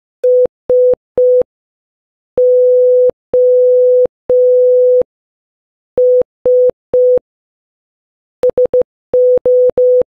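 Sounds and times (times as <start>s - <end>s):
morse code beeps: 8.4s - 10.0s.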